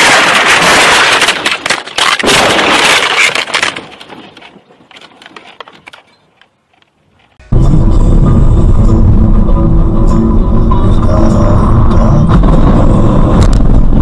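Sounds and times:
vehicle crash crunching: 0:00.0 - 0:06.1
debris clattering: 0:00.0 - 0:06.5.

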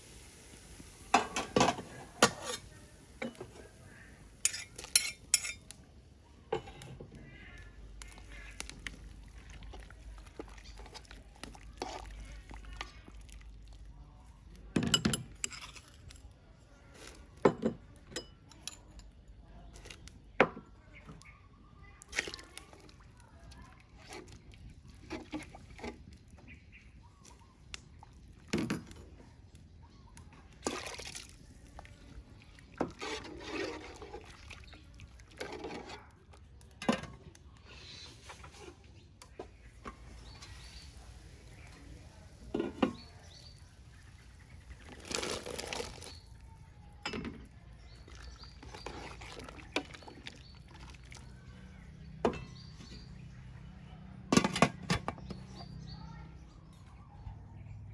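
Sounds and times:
metal ladle clinking against pot: 0:04.4 - 0:05.8
liquid splashing and sloshing: 0:07.2 - 0:14.0, 0:22.0 - 0:28.8, 0:30.4 - 0:36.2, 0:39.5 - 0:46.5, 0:47.5 - 0:52.2.

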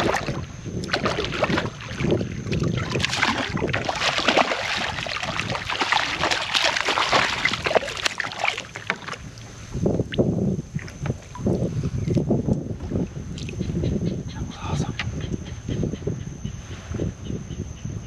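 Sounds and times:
fish thrashing and splashing: 0:00.0 - 0:09.5.

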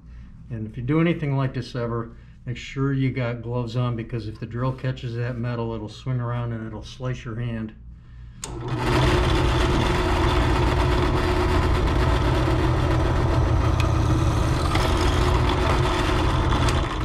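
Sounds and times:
drill press cutting sheet steel: 0:08.4 - 0:17.0.

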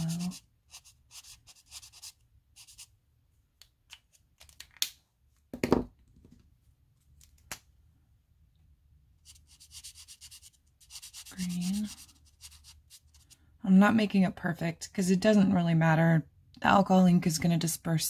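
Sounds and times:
marker tip scratching on nail: 0:00.0 - 0:02.9, 0:09.2 - 0:13.4.

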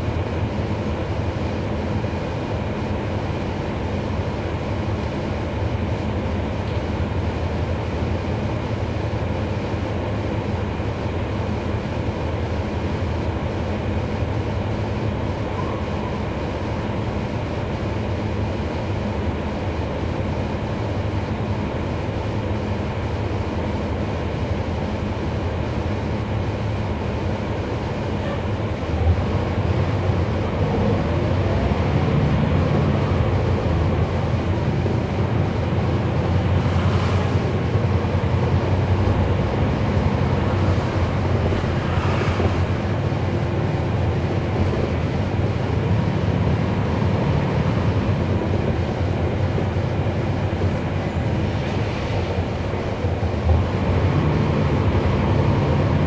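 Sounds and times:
bus diesel engine rumble: 0:00.0 - 0:56.0
road noise: 0:00.0 - 0:56.0.

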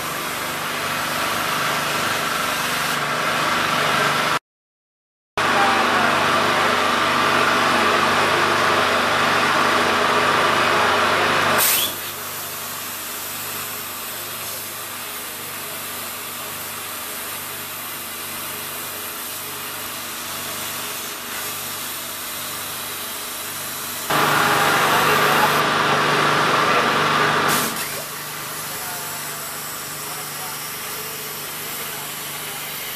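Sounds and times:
plasma cutter hissing: 0:11.6 - 0:25.8, 0:27.4 - 0:32.9
machine hum: 0:24.1 - 0:31.2.

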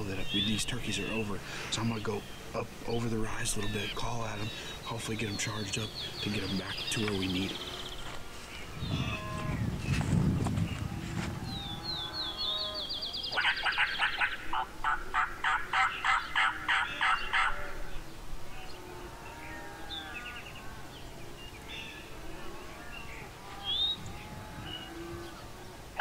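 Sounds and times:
faint cattle lowing: 0:00.0 - 0:13.2, 0:16.3 - 0:26.0
turkey call yelps: 0:13.3 - 0:17.8.

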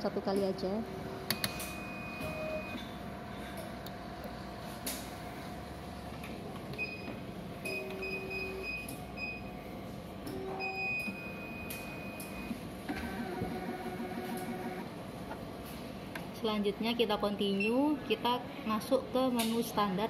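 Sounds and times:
machine hum: 0:11.4 - 0:15.6.

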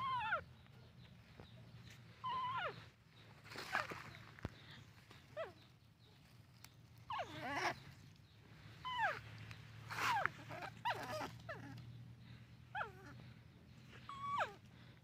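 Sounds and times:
baby monkey crying: 0:00.0 - 0:00.6, 0:02.2 - 0:03.0, 0:07.1 - 0:08.0, 0:08.8 - 0:11.9, 0:12.7 - 0:14.8.

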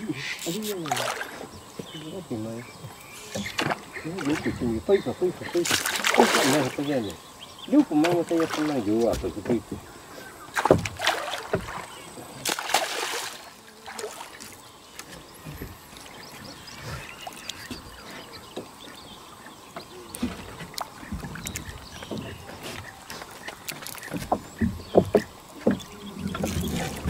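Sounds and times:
fish thrashing and splashing: 0:00.5 - 0:01.5, 0:03.4 - 0:07.0, 0:07.8 - 0:09.7, 0:10.5 - 0:14.6, 0:20.2 - 0:27.0.

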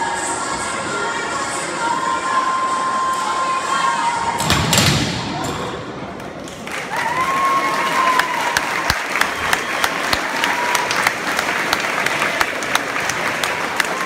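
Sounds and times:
crowd applauding and cheering: 0:06.4 - 0:14.0.

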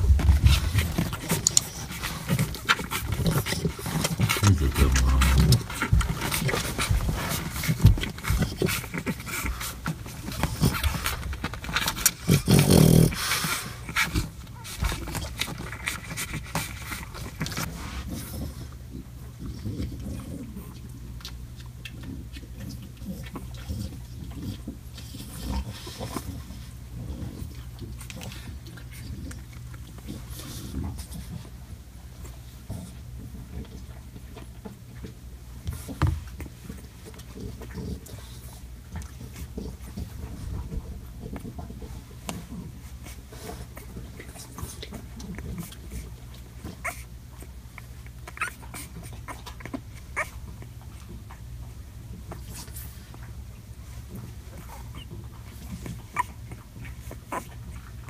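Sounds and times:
small clicks and rustles: 0:00.0 - 0:04.4, 0:05.5 - 0:12.6
steady low hum: 0:00.0 - 0:12.5
puppies grunting and snuffling: 0:00.0 - 0:58.0
puppy squeaks: 0:48.3 - 0:50.4, 0:56.0 - 0:57.5.

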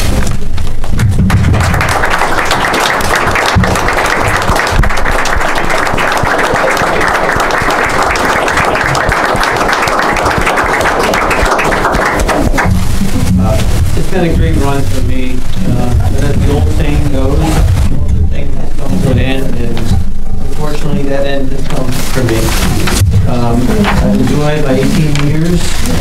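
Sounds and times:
audience applauding: 0:01.0 - 0:13.3.

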